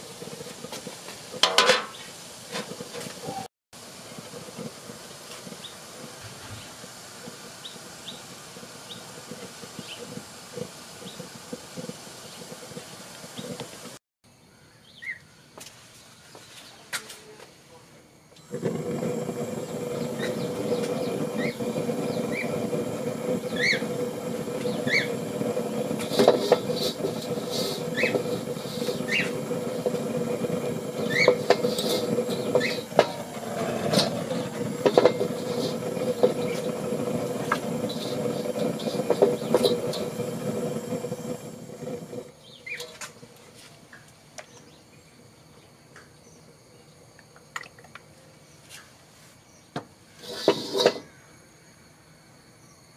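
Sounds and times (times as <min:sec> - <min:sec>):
gas burner rushing: 0:00.0 - 0:14.0, 0:18.3 - 0:43.4, 0:49.8 - 0:51.1
birds chirping: 0:12.2 - 0:13.7, 0:14.4 - 0:16.9, 0:18.8 - 0:47.0.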